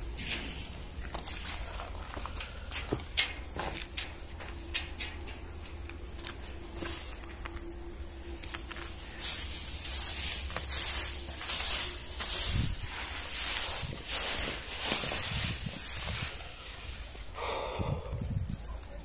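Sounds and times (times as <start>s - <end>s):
faint steady hum: 0.0s - 19.0s
footsteps scuffing on gritty floor: 8.6s - 17.1s.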